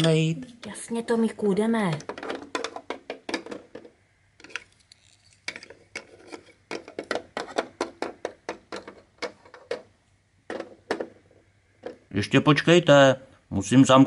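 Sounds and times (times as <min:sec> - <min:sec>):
plastic toy clicks and taps: 0:01.9 - 0:04.7.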